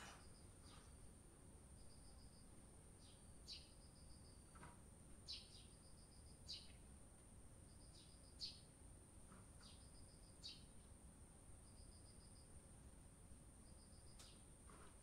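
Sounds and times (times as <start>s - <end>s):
sparrow chirping: 3.0s - 4.4s, 5.3s - 6.8s, 7.7s - 8.7s, 9.6s - 10.8s.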